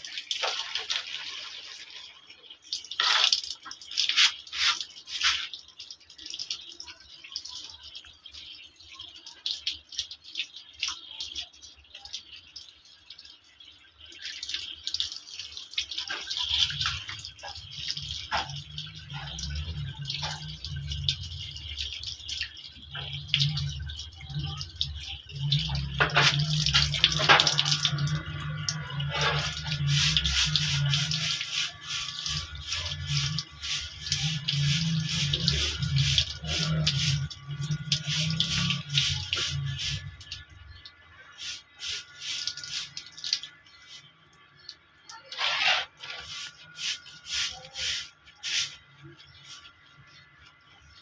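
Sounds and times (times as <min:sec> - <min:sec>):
water splashing: 0:00.0 - 0:08.1, 0:14.0 - 0:44.7
wet fur being rubbed: 0:04.1 - 0:05.5, 0:45.4 - 0:48.8.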